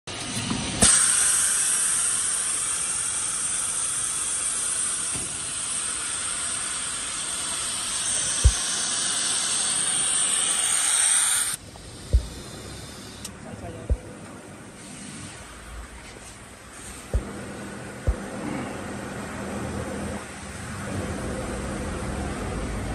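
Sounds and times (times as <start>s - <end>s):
compressed air hissing: 0.8s - 13.4s, 14.7s - 15.6s
low thump: 8.4s - 8.6s, 12.1s - 12.4s.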